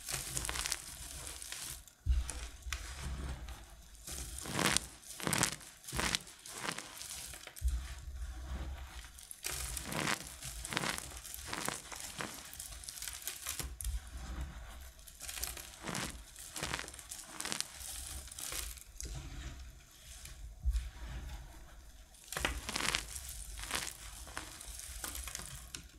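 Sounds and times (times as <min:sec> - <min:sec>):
hands crunching dry soap: 0:00.0 - 0:02.4, 0:04.1 - 0:07.8, 0:09.0 - 0:13.7, 0:15.1 - 0:18.8, 0:22.3 - 0:25.7.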